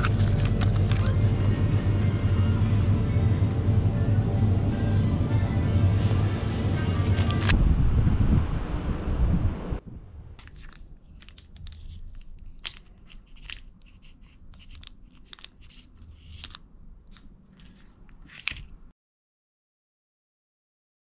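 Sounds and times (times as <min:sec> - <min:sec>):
plastic wrappers crinkling: 0:00.0 - 0:01.6, 0:10.4 - 0:18.9
wind noise on microphone: 0:07.1 - 0:10.4.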